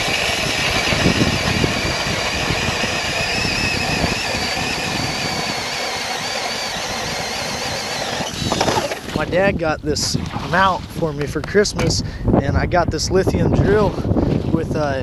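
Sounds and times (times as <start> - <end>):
ice chips grinding: 0.0 - 9.2
drill motor whine: 0.0 - 9.3.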